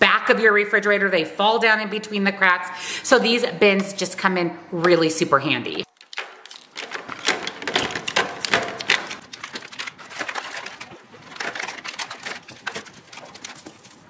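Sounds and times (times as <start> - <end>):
plastic packages clicking and knocking: 5.8 - 14.0.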